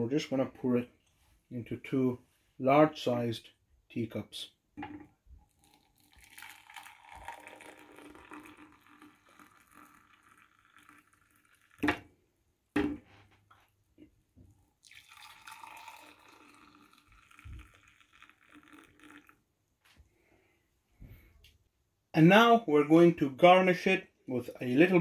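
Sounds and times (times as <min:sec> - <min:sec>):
tea pouring into a mug: 0:05.4 - 0:12.0, 0:14.8 - 0:19.4.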